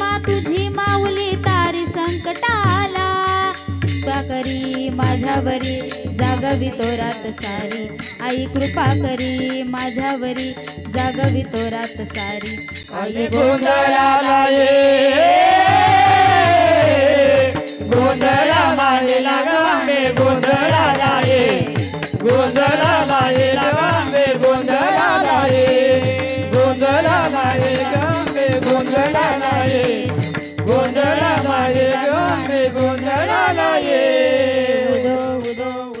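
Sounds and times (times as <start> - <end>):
woman singing into microphone: 0.0 - 12.9
hand cymbals steady beat: 0.0 - 36.0.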